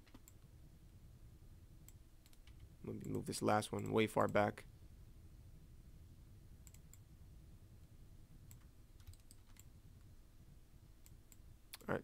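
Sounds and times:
computer mouse clicks: 0:00.0 - 0:00.5, 0:01.8 - 0:03.2, 0:06.6 - 0:07.0, 0:08.4 - 0:09.7.

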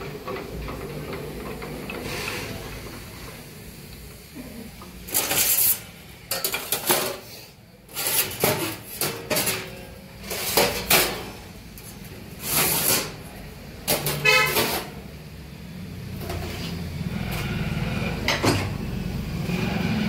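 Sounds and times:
harsh metallic scraping: 0:00.0 - 0:03.8
low machine hum: 0:00.0 - 0:05.1.

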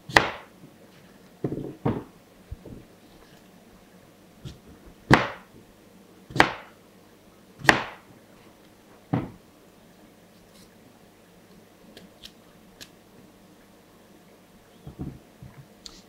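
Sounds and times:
knife chopping on cutting board: 0:00.1 - 0:00.5, 0:04.5 - 0:05.5, 0:06.3 - 0:06.7, 0:07.6 - 0:08.0.

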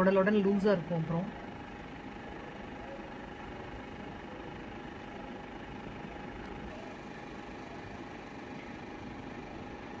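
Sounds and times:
background hum and hiss: 0:00.0 - 0:10.0
faint constant whine: 0:00.0 - 0:10.0.

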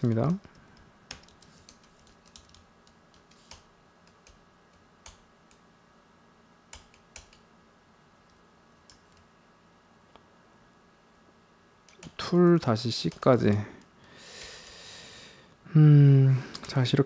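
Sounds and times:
typing on computer keyboard: 0:00.0 - 0:04.4, 0:06.7 - 0:07.5.

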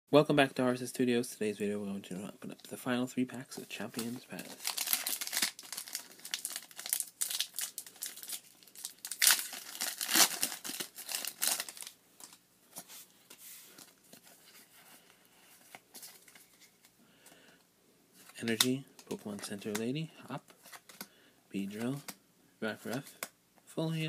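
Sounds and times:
foil wrapper crinkling and tearing: 0:04.3 - 0:12.4.

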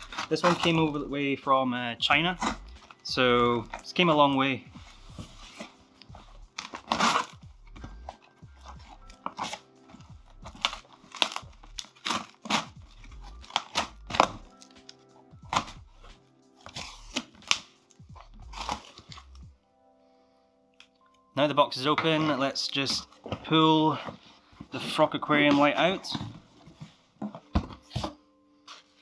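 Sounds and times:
cardboard tearing: 0:00.0 - 0:01.0, 0:06.5 - 0:15.8, 0:16.6 - 0:19.4
soft background music: 0:00.0 - 0:29.0.

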